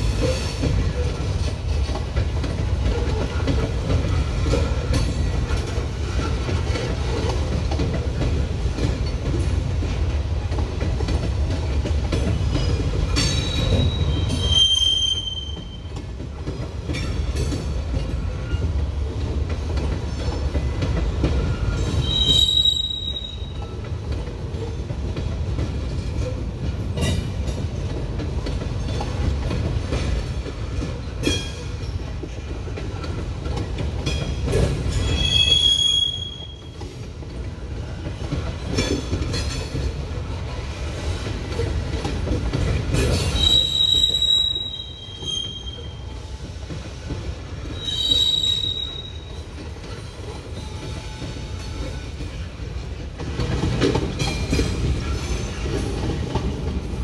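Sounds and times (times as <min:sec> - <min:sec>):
freight train rumbling past: 0:00.0 - 0:57.0
wheels clicking over rail joints: 0:00.2 - 0:57.0
high-pitched wheel squeal: 0:22.0 - 0:23.5, 0:35.1 - 0:36.6, 0:43.4 - 0:46.0, 0:47.8 - 0:49.3.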